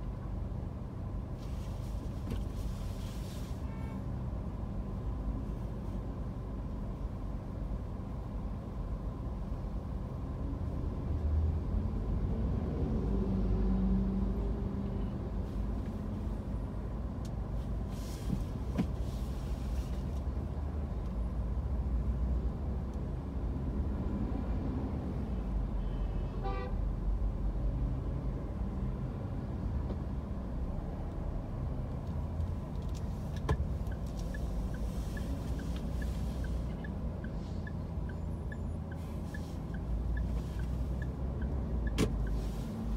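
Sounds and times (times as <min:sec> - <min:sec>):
car engine and road noise: 0:00.0 - 0:42.9
car horn beep: 0:03.6 - 0:04.1, 0:25.8 - 0:26.8.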